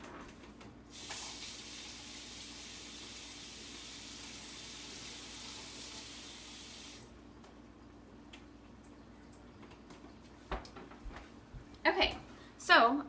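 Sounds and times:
tap water running: 0:00.9 - 0:11.2.

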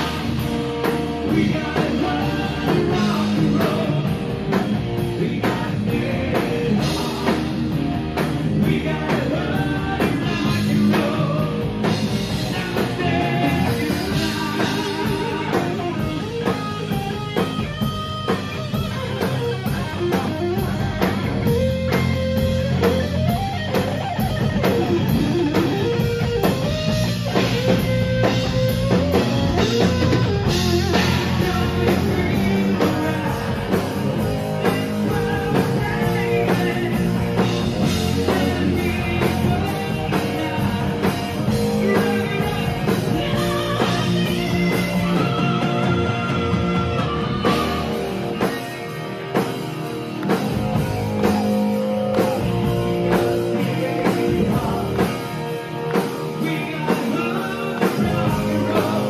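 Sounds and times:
person singing: 0:00.0 - 0:04.4, 0:08.5 - 0:16.6, 0:29.8 - 0:48.5, 0:52.2 - 0:59.0
drum kit: 0:00.0 - 0:59.0
electric guitar: 0:00.0 - 0:59.0.

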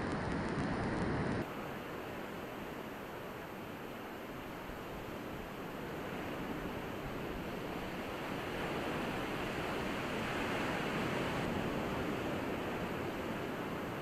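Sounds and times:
ocean surf on beach: 0:00.0 - 0:02.6, 0:05.6 - 0:14.0.

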